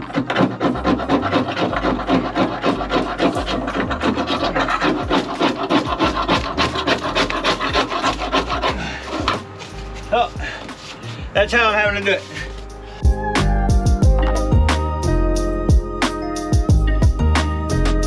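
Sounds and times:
scraper blade rasping on metal: 0.0 - 10.2.

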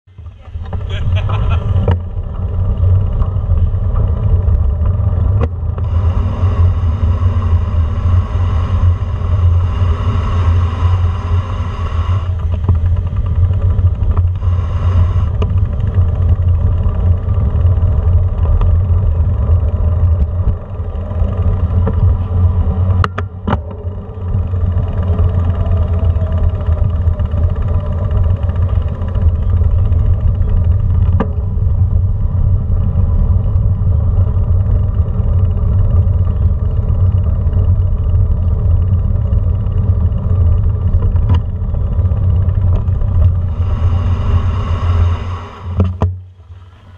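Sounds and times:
bicycle rolling over brick pavement: 0.1 - 9.9, 12.3 - 14.6, 15.3 - 43.6.

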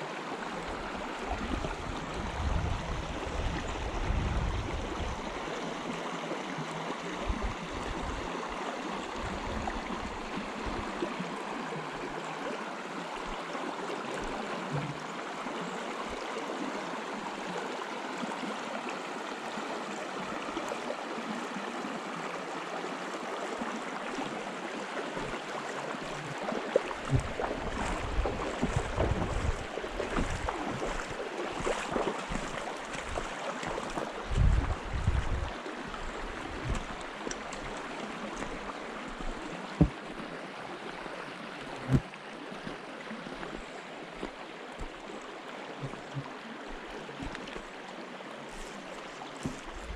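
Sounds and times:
river water rushing: 0.0 - 49.9
low thumps and knocks: 27.1 - 30.6, 34.3 - 35.5, 36.5 - 37.0.

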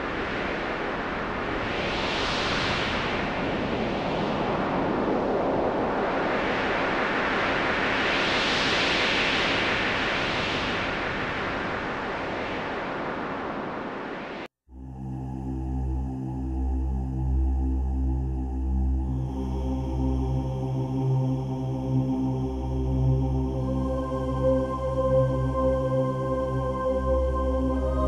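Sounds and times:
wind buffeting microphone: 0.0 - 14.4.

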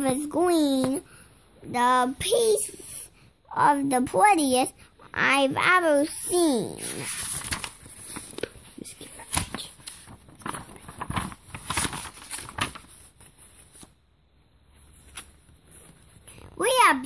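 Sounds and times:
book pages flipping: 6.8 - 14.0, 14.8 - 16.6.

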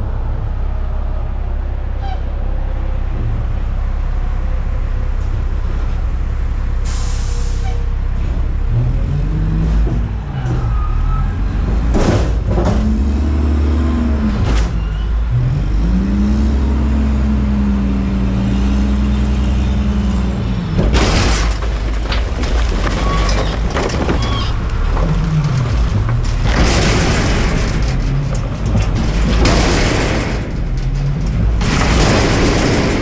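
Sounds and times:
diesel engine revving: 0.0 - 33.0
knocks and bangs: 11.5 - 13.1, 20.6 - 33.0
trash clattering into hopper: 20.8 - 33.0.

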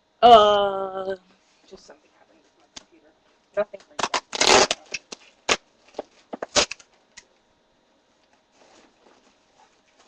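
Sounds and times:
packing tape crackling: 3.8 - 7.3.

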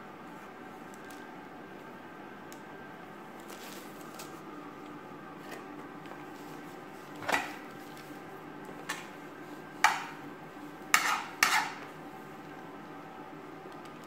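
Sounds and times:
pastry handled on crinkly foil: 3.3 - 4.6.

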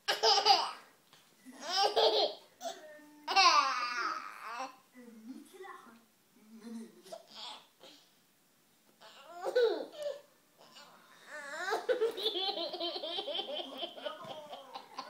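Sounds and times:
toddler laughing: 1.6 - 4.6, 9.1 - 10.2, 11.6 - 15.0.

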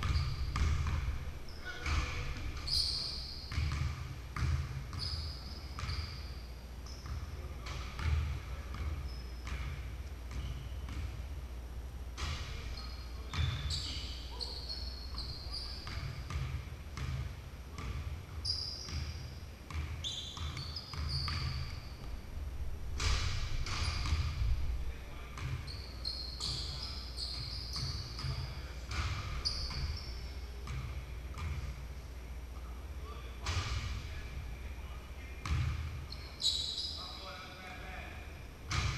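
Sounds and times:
basketballs bouncing on wooden floor: 0.0 - 5.1, 7.0 - 11.2, 15.8 - 21.8, 23.0 - 24.6, 25.4 - 25.7, 26.4 - 30.0, 35.4 - 35.9, 38.7 - 38.9
sneaker squeaks: 0.0 - 11.2, 12.2 - 17.1, 17.8 - 22.2, 23.0 - 24.6, 25.4 - 31.6, 35.4 - 37.5.

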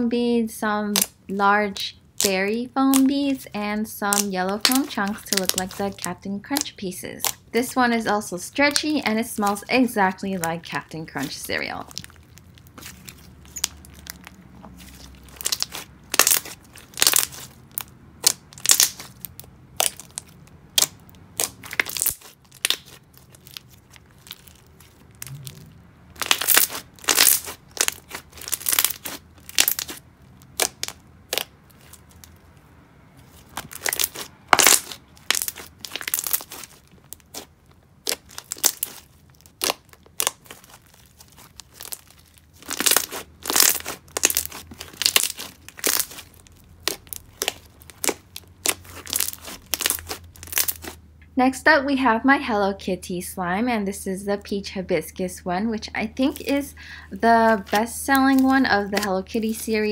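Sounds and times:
slime crackling clicks and pops: 15.3 - 24.4, 26.2 - 30.0, 30.6 - 32.3, 33.6 - 51.0.

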